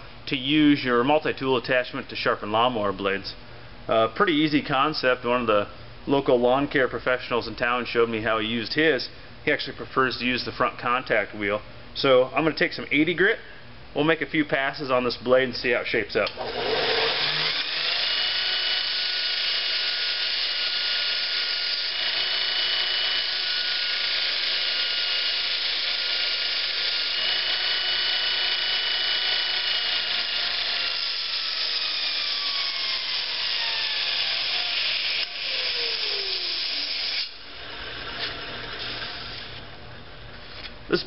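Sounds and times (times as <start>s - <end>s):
grinder motor whine: 16.4s - 39.6s.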